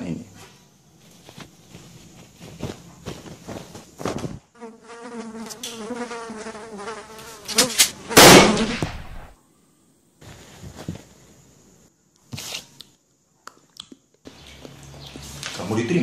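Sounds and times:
wavering insect-like buzz: 0:04.4 - 0:09.3.

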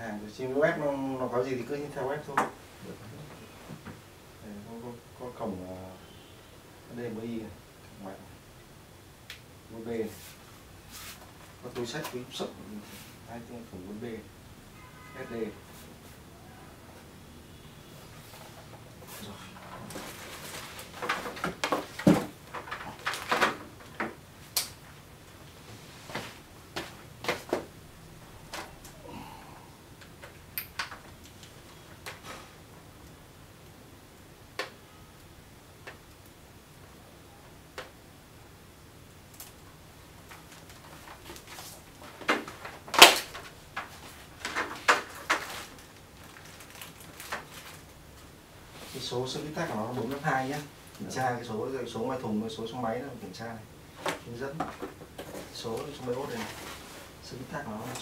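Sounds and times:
plastic and cardboard rustling: 0:18.2 - 0:24.6, 0:40.2 - 0:51.3, 0:53.9 - 0:58.0.

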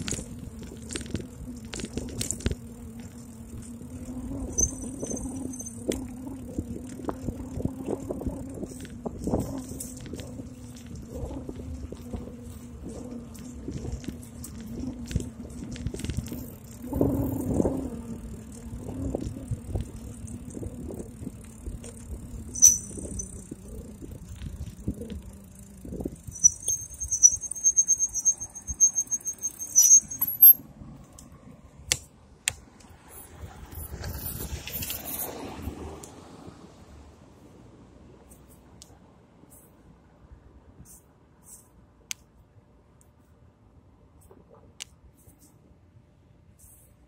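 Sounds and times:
bike rolling with low hum: 0:00.0 - 0:47.0
bike brakes squealing: 0:04.4 - 0:06.4, 0:22.4 - 0:24.0, 0:24.7 - 0:30.6.

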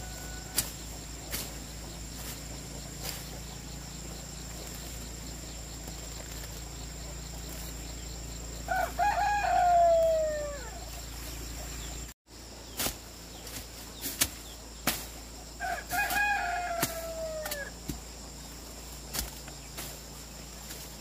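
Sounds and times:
rooster crowing: 0:00.0 - 0:00.7, 0:08.7 - 0:10.9, 0:15.6 - 0:17.8.

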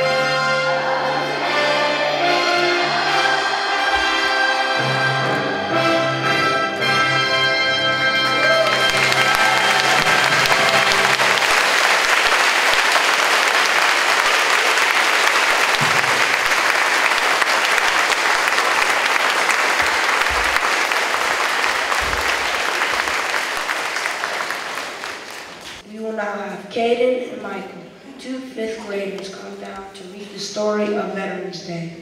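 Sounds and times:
band music: 0:00.0 - 0:25.8
audience applauding: 0:08.1 - 0:25.8.

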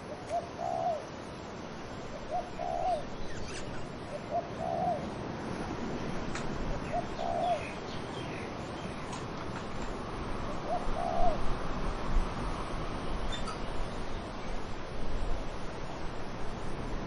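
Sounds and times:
wind in trees: 0:00.0 - 0:17.0
dove cooing: 0:00.1 - 0:01.1, 0:02.1 - 0:03.1, 0:04.1 - 0:05.1, 0:06.7 - 0:07.8, 0:10.5 - 0:11.5.

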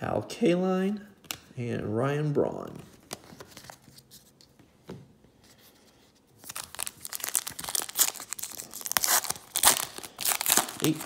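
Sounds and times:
foil wrapper tearing and crinkling: 0:06.4 - 0:11.0.

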